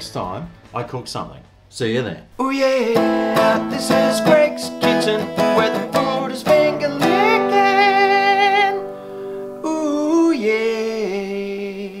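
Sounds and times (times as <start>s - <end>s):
acoustic guitar strumming: 2.4s - 12.0s
person singing with vibrato: 2.4s - 12.0s.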